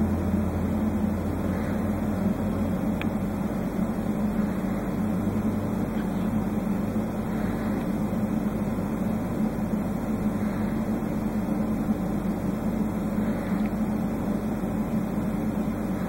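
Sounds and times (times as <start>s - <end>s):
low machine hum: 0.0s - 16.0s
faint tick: 3.0s - 3.2s, 13.6s - 13.8s.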